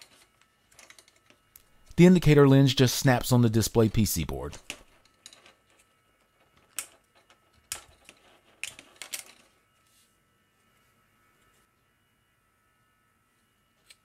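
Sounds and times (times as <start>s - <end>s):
small plastic parts clicking: 4.7s - 9.5s.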